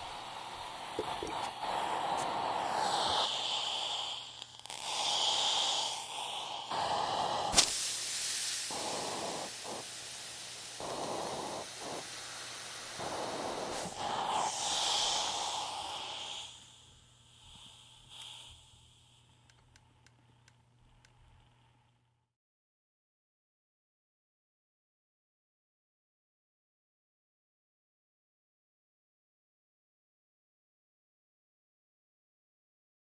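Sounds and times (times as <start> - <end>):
hot iron sizzling: 0.0 - 19.1
steam hissing: 0.0 - 19.5.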